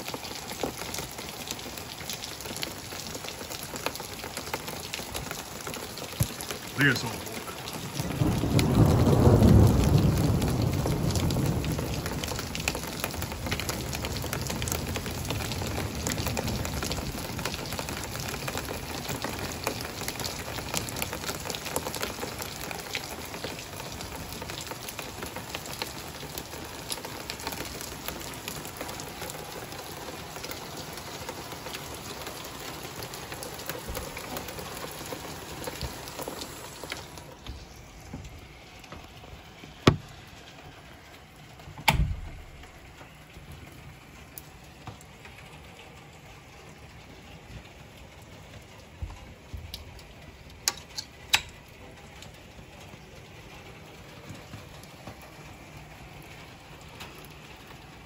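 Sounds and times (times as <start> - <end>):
heavy rain: 0.0 - 58.0
thunder rumbling: 7.2 - 17.8.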